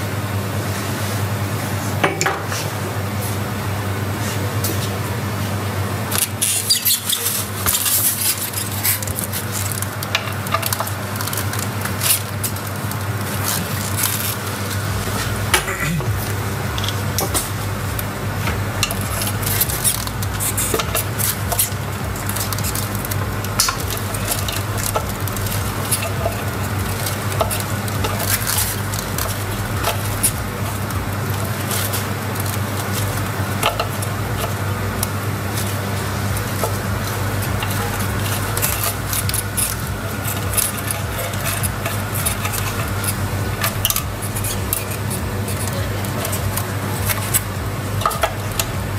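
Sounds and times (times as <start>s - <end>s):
steady low hum: 0.0s - 48.9s.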